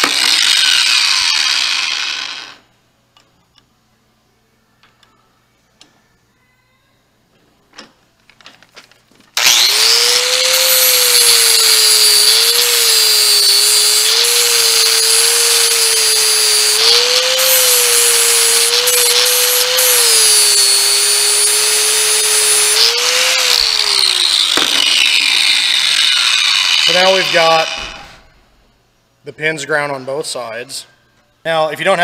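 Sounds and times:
angle grinder grinding steel: 0:00.0 - 0:02.7, 0:09.4 - 0:28.2.

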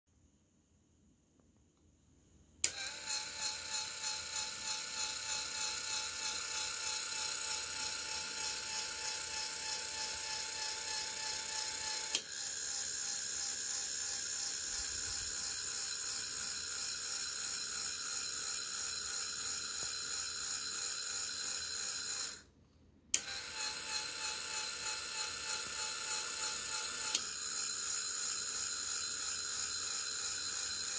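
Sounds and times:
motor whining: 0:02.6 - 0:18.1, 0:23.2 - 0:30.9.

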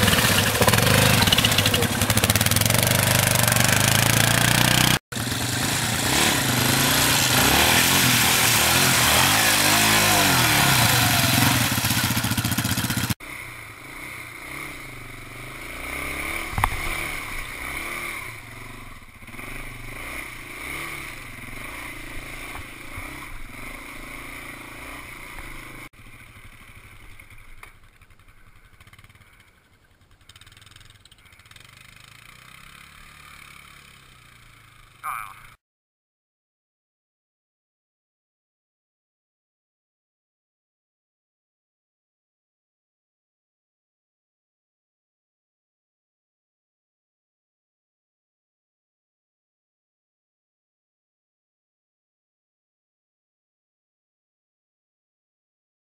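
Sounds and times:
atv engine revving: 0:00.0 - 0:35.5.

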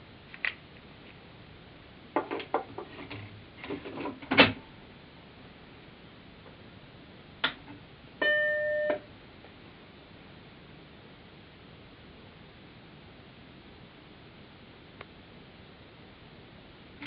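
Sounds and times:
floppy drive clicks and clunks: 0:02.2 - 0:04.6.

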